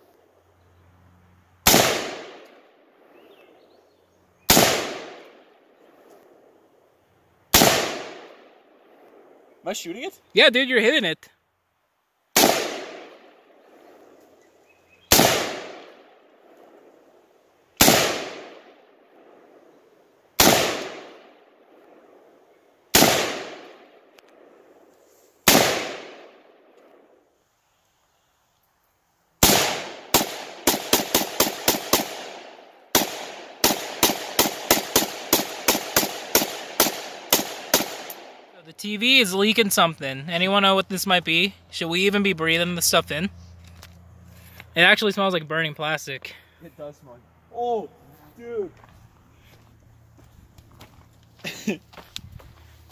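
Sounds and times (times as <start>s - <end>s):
rapid semi-automatic gunfire: 1.6s - 2.5s, 4.5s - 5.5s, 7.5s - 8.6s, 12.4s - 13.5s, 15.1s - 16.2s, 17.8s - 19.4s, 20.4s - 21.4s, 22.9s - 24.6s, 25.4s - 26.5s, 29.4s - 38.5s
rifle single shots with echo: 1.6s - 3.3s, 4.4s - 6.5s, 7.5s - 9.6s, 12.3s - 27.2s, 29.4s - 38.6s.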